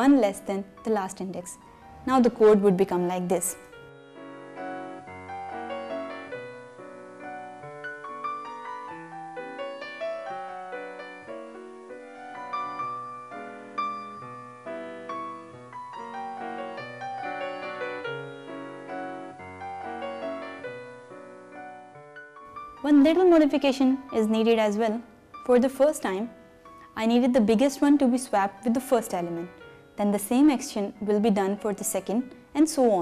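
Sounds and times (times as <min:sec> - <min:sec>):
piano music: 0:00.0 - 0:33.0.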